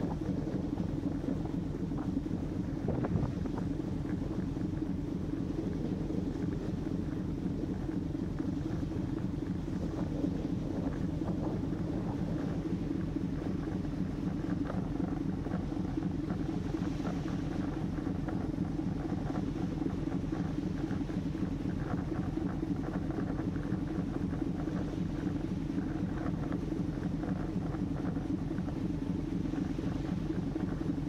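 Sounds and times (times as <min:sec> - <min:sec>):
wind and water hiss: 0:00.0 - 0:14.7.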